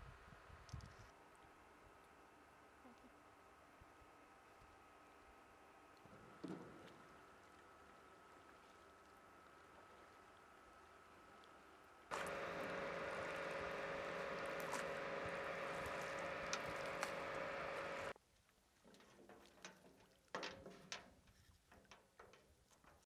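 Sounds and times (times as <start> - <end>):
steady hum: 0.0 - 18.2
water drips and splashes: 5.9 - 18.0.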